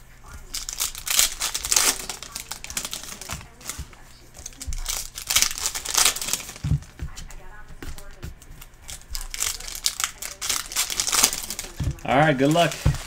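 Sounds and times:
foil tearing: 0:00.0 - 0:13.0
foil wrapper crinkling: 0:00.0 - 0:13.0.

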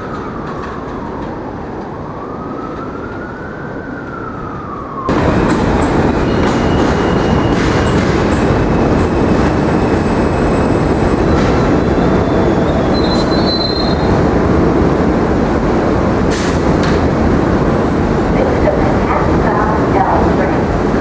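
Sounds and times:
train wheels rumbling on rails: 0:04.0 - 0:21.0
high brake squeal: 0:06.2 - 0:08.2, 0:09.7 - 0:14.0.

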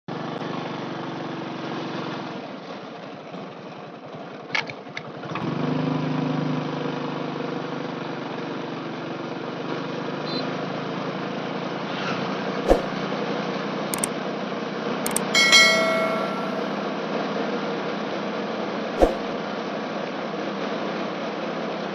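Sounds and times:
sharp clicks: 0:15.1 - 0:16.7
ringing bell chime: 0:15.1 - 0:16.9.

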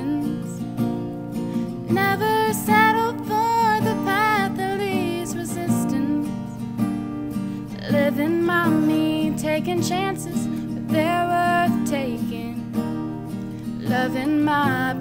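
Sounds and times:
woman singing: 0:00.0 - 0:01.0, 0:01.8 - 0:06.9, 0:07.6 - 0:15.0
strummed acoustic guitar: 0:00.0 - 0:15.0.

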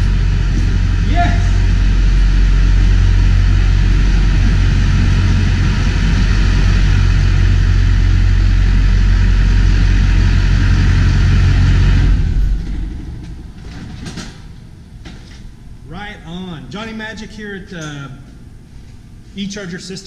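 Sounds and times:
diesel engine droning: 0:00.0 - 0:13.5.

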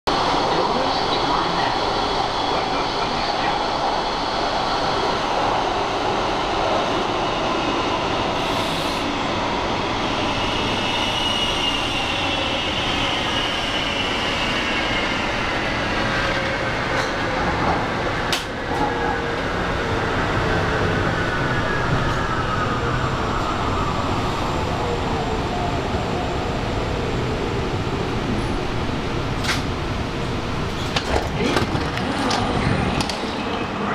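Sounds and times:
train running rumble: 0:27.6 - 0:33.9.

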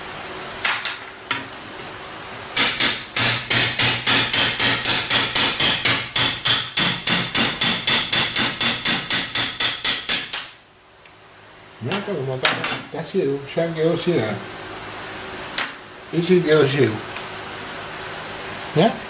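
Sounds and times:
hammer striking steel tool: 0:02.6 - 0:10.6.

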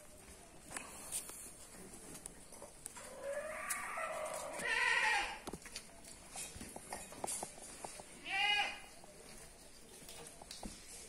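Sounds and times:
goat kids bleating: 0:03.3 - 0:05.4, 0:08.2 - 0:08.9.

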